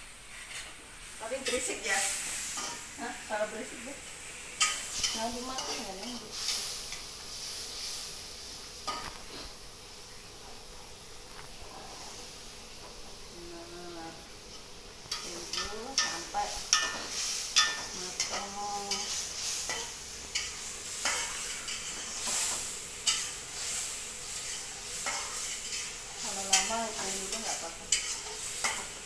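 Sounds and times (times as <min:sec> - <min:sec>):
chicken sizzling in a frying pan: 0:00.0 - 0:29.0
spatula scraping a pan: 0:00.2 - 0:00.8, 0:15.1 - 0:29.0.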